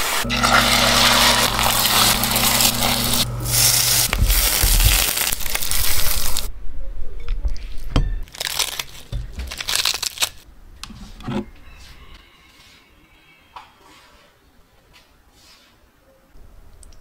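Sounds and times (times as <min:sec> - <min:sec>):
spatula stirring in pan: 0:00.0 - 0:05.0
food sizzling in frying pan: 0:00.0 - 0:06.5
low steady hum: 0:00.0 - 0:06.5
lettuce leaves being torn: 0:00.4 - 0:06.5, 0:08.3 - 0:10.4.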